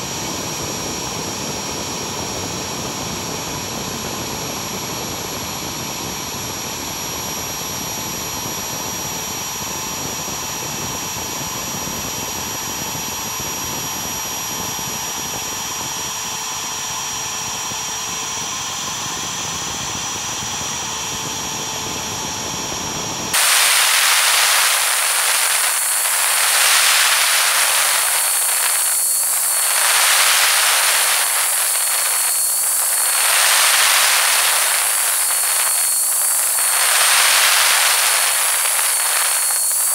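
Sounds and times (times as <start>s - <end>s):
router spindle cutting steel sheet: 23.4s - 39.9s.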